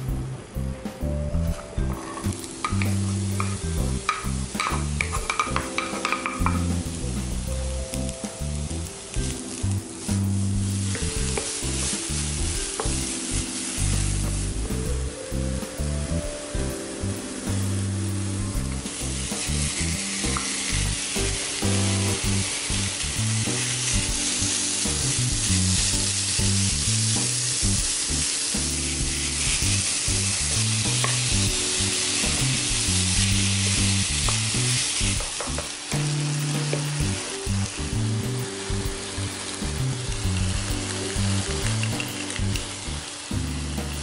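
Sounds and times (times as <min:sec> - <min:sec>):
meat and onion sizzling in a pan: 0:01.4 - 0:44.0
spatula clicking against pan: 0:02.6 - 0:06.6.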